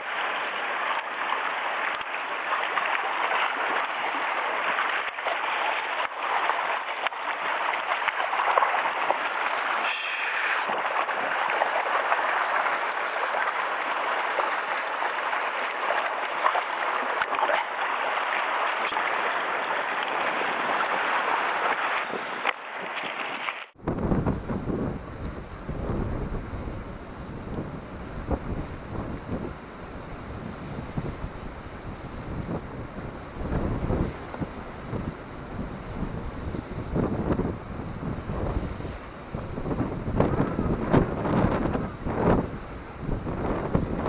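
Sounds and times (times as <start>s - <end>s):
sea waves washing over rocks: 0.0s - 23.8s.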